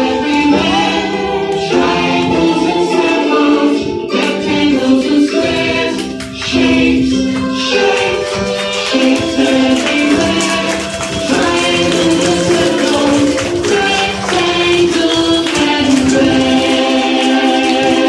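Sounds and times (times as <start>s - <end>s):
children's song melody: 0.0s - 18.0s.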